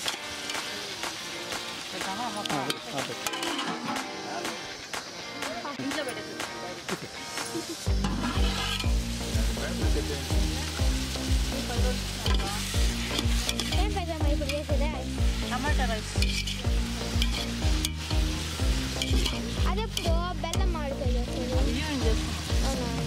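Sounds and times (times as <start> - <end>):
background music with beat: 0.0 - 23.0
steady hiss: 0.0 - 23.0
ladle stirring in pot: 8.0 - 8.9, 16.2 - 18.2, 18.9 - 20.0.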